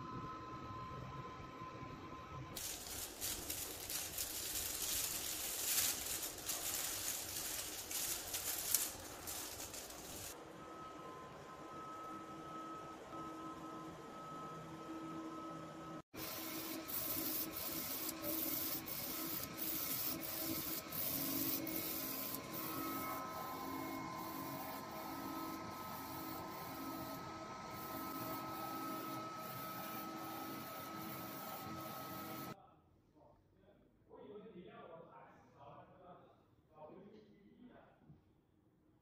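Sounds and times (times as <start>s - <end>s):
printer carriage whirring: 2.4s - 10.4s, 16.2s - 32.6s
fan noise: 2.6s - 10.4s.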